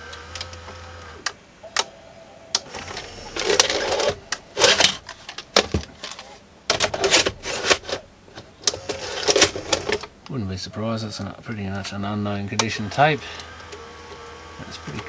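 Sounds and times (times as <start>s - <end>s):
steady hum: 0.0s - 14.9s
whirring clattering tape mechanism: 2.5s - 10.1s.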